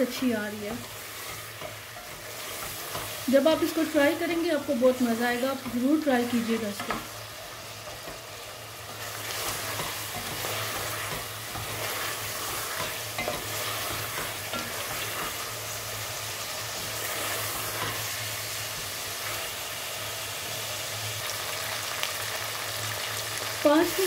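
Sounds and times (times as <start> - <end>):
chicken sizzling in oil: 0.0 - 24.0
wooden spatula scraping: 0.4 - 15.6.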